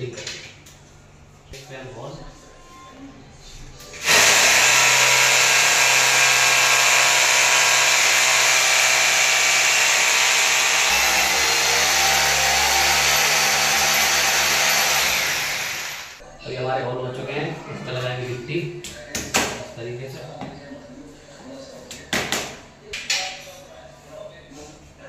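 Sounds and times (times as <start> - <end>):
hammer drill boring into wall: 3.9 - 16.2.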